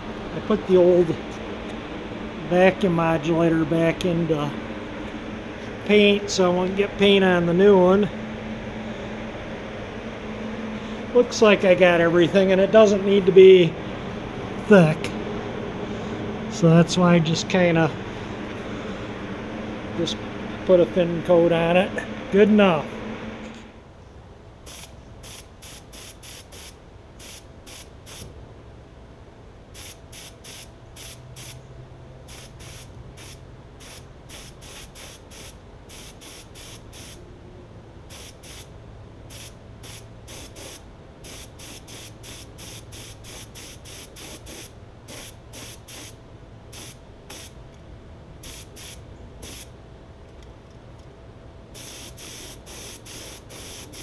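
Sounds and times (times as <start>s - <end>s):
paint spray gun hissing: 24.7s - 28.3s, 29.8s - 31.6s, 32.3s - 37.2s, 38.1s - 38.7s, 39.3s - 47.6s, 48.4s - 49.8s, 51.8s - 54.0s.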